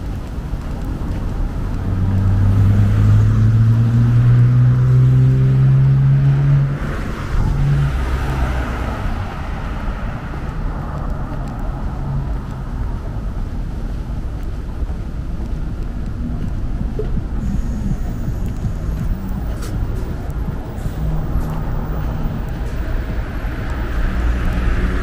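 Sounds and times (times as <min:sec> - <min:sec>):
traffic noise: 0:00.0 - 0:25.0
vehicle engine accelerating: 0:00.8 - 0:13.9, 0:14.9 - 0:25.0.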